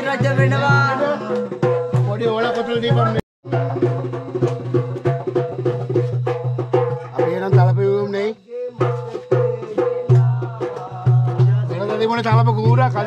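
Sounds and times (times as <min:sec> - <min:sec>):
percussive beat: 0:00.0 - 0:13.0.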